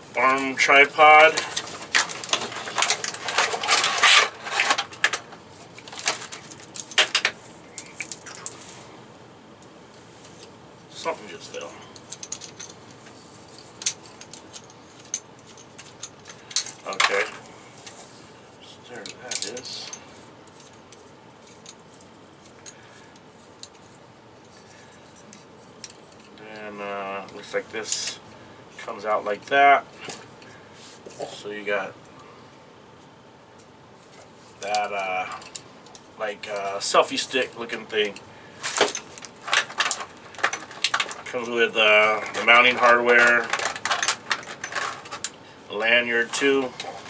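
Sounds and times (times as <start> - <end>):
clicks and knocks of handled parts: 0.2 - 8.8, 9.6 - 18.0, 18.9 - 28.2, 33.6 - 47.0
plastic packaging crinkling: 1.2 - 8.8, 38.6 - 45.3.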